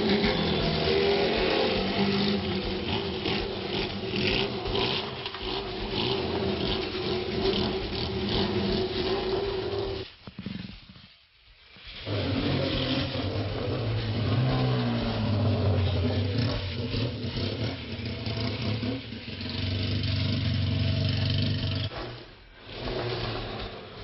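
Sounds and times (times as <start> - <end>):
vehicle engines running: 0.0 - 10.7, 11.8 - 24.0
rasping noise: 0.0 - 24.0.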